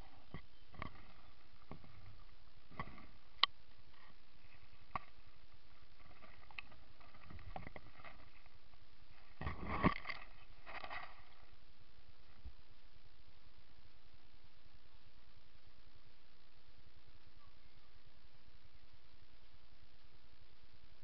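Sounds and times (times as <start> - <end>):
leaves and twigs rustling: 0.0 - 12.4.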